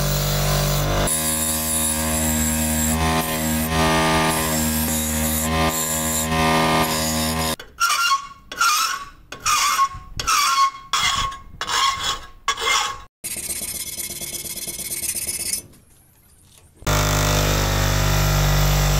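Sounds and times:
hand file rasping on steel: 1.0 - 15.6.

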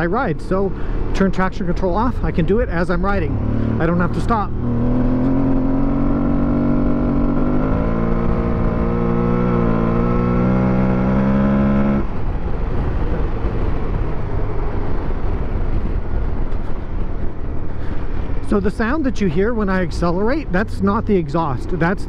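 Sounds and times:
wind rush: 0.0 - 21.9
motorcycle engine accelerating hard: 2.9 - 18.5.

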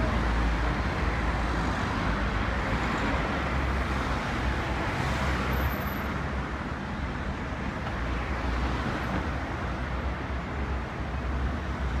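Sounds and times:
road traffic hum: 0.0 - 12.0.

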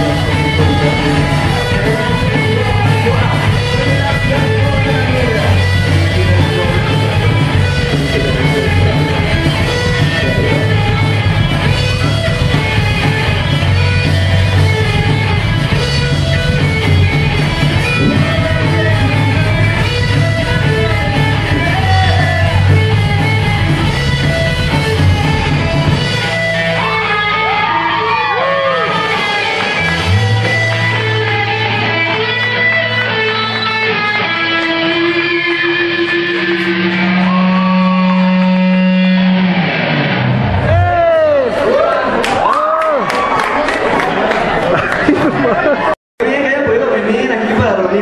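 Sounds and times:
electric guitar: 0.0 - 42.6
bass guitar: 0.0 - 42.8
drums: 0.0 - 47.8.

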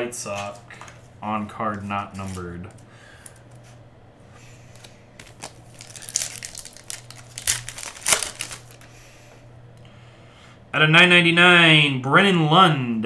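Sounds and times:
foil wrapper crinkling: 4.8 - 8.9.

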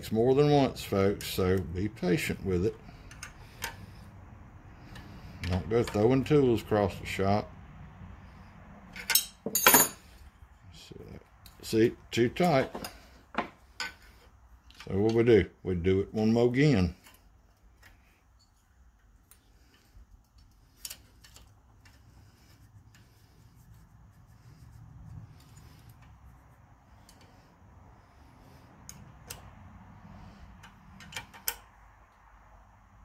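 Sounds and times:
metallic clicks and taps of tools: 3.0 - 3.8, 4.9 - 6.0, 12.4 - 15.2, 28.8 - 29.5, 30.5 - 32.2.

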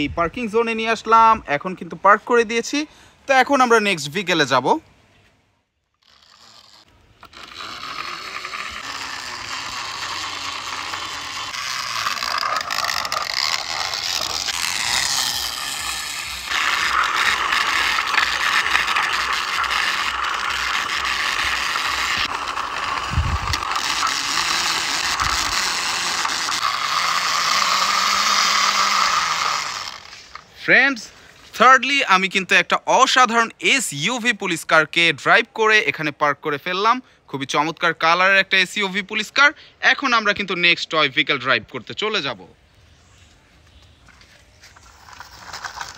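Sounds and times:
toy car wheels ratcheting rattle: 6.0 - 30.5, 44.8 - 45.9.

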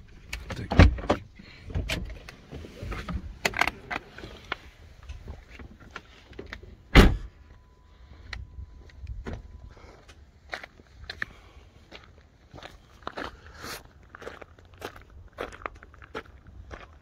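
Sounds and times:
car door shutting: 6.9 - 7.3.

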